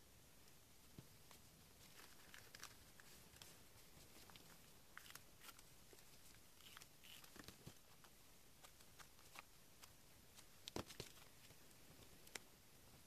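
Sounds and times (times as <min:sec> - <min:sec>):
paper rustling: 0:01.3 - 0:11.6
scissors cutting paper: 0:06.5 - 0:07.6.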